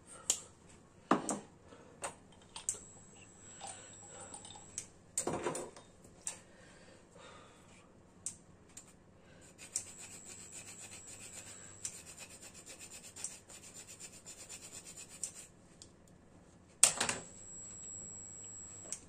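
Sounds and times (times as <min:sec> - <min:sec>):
nutmeg grating: 0:09.5 - 0:15.5.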